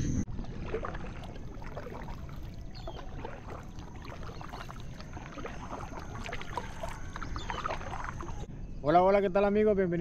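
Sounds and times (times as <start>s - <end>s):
steady low rumble: 0.0s - 3.2s
paddle splashes and drips: 0.3s - 8.5s.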